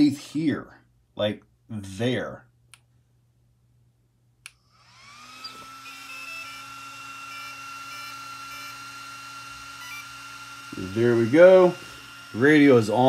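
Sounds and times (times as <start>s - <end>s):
electronic whine: 4.8s - 12.6s.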